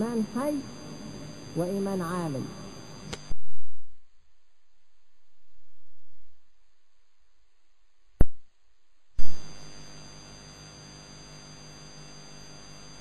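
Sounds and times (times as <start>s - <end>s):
electrical hum and hiss: 0.0s - 13.0s
sharp click: 3.1s - 3.4s.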